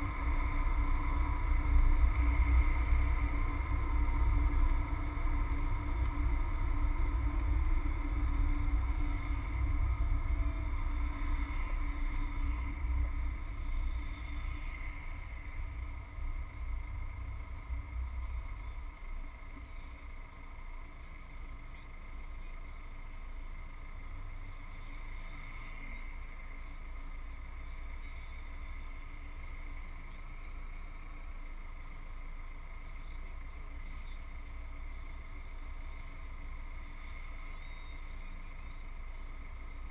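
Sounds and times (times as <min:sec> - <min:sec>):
car engine idling: 0:00.0 - 0:39.9
car road and engine rumble: 0:00.0 - 0:39.9.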